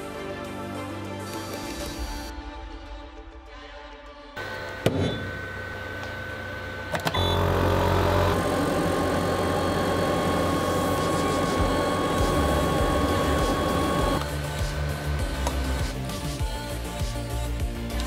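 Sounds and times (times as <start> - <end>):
laser head whine: 4.4 - 16.0
fan hum: 4.4 - 16.4.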